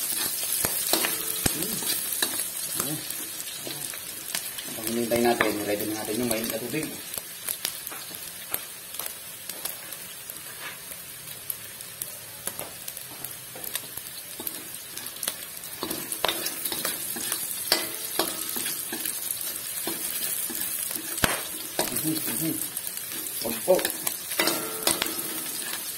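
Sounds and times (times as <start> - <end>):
metal spatula stirring and scraping: 0.0 - 4.1, 14.4 - 25.9
food sizzling in a wok: 0.0 - 25.9.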